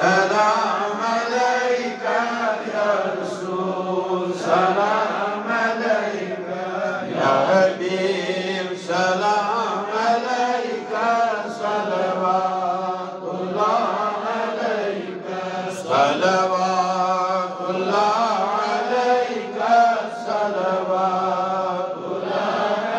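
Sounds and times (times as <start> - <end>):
man chanting through loudspeaker: 0.0 - 22.0.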